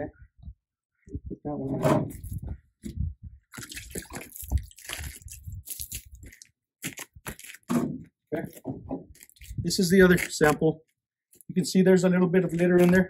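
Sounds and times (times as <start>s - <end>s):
water sloshing: 3.4s - 7.5s
plastic bottles crinkling and knocking: 3.5s - 11.8s, 12.4s - 13.0s.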